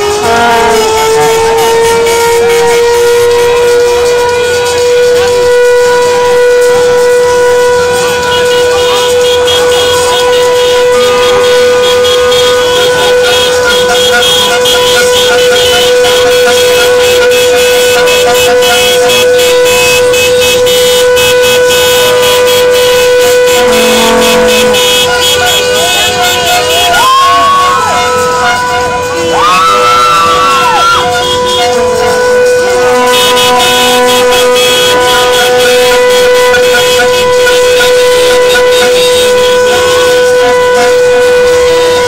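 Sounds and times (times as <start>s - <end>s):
low horn note: 0.1s - 1.8s, 23.5s - 25.2s
short siren tones: 23.6s - 25.1s
siren steady tone: 23.6s - 25.2s
crowd noise: 23.6s - 26.6s.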